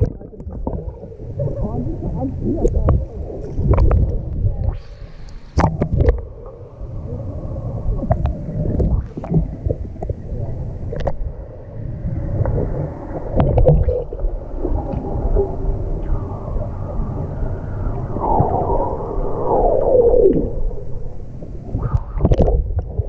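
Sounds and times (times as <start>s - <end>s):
muffled underwater rumble: 0.0s - 23.0s
water splashing: 0.0s - 23.0s.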